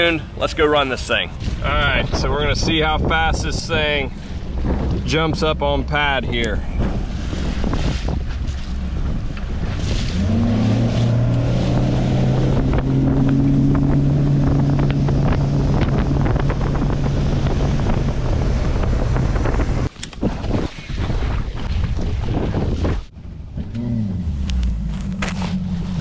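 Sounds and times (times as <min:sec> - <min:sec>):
wind buffeting microphone: 0:00.0 - 0:26.0
outboard engine accelerating: 0:01.4 - 0:26.0
water splashing against hull: 0:04.1 - 0:23.1.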